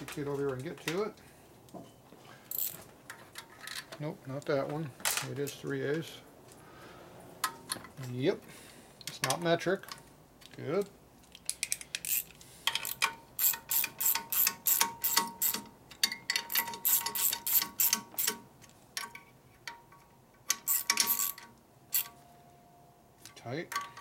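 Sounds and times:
socket ratchet clicking: 11.3 - 18.4, 20.5 - 22.1.

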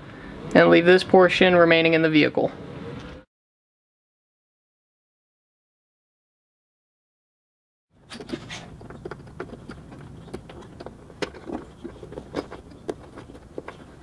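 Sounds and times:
handling clicks and scrapes: 8.0 - 14.0.

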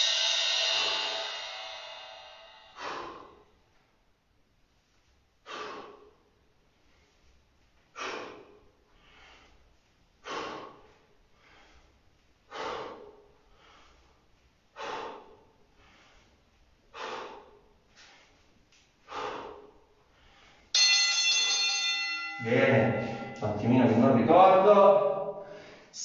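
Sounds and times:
man exhaling forcefully: 0.0 - 3.6, 5.4 - 6.2, 7.9 - 9.5, 10.2 - 11.8, 12.5 - 14.0, 14.7 - 16.3, 16.9 - 17.7, 19.1 - 20.5
in-breaths: 0.2 - 3.9, 5.4 - 20.8, 22.9 - 23.4, 25.3 - 26.0.

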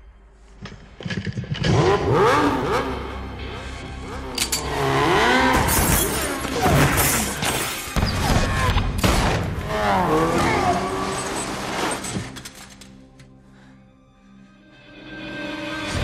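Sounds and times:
film score music: 0.0 - 16.0
motorcycle engine revving: 1.4 - 7.4
tyres skidding: 9.5 - 12.9.

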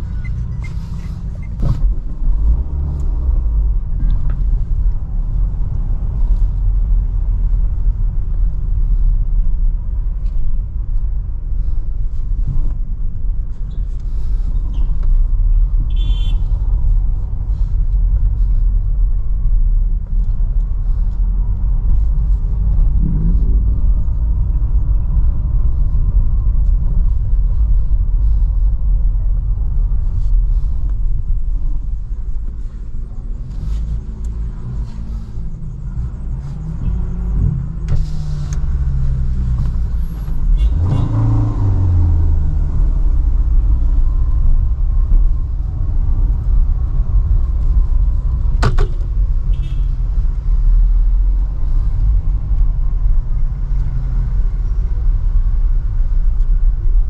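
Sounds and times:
car engine and road rumble: 0.0 - 57.0.

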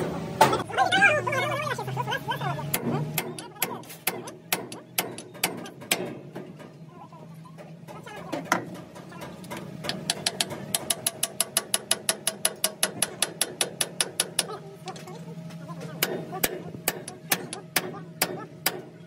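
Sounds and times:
hammer tapping on metal punch: 2.7 - 6.5, 8.5 - 14.6, 16.0 - 19.0
loud metal knock: 2.7 - 6.6.

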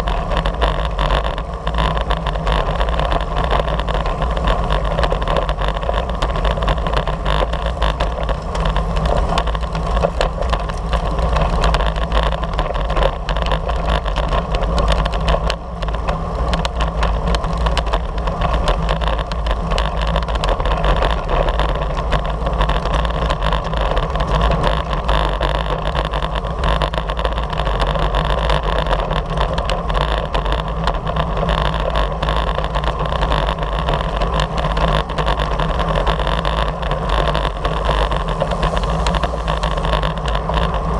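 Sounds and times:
wind rushing over microphone: 0.0 - 40.9.

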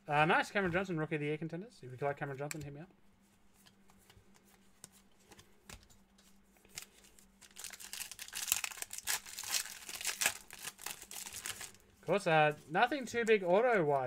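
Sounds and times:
foil wrapper crinkling: 6.6 - 11.8.

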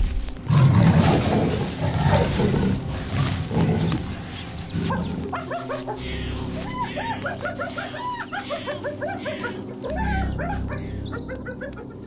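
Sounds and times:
leopard growling and snarling: 0.3 - 6.5
bird cooing: 1.2 - 12.0.

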